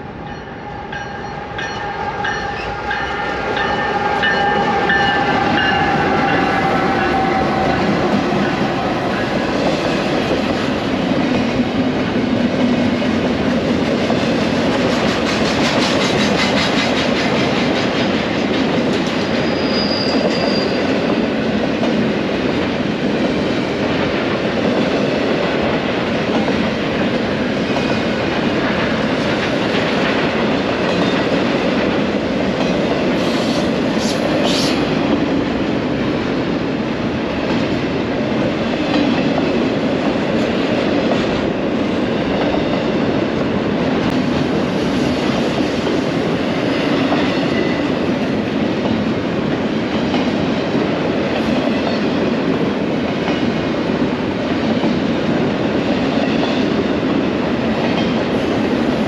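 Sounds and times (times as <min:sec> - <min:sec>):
freight train wheels rolling on rail: 0:00.0 - 0:59.0.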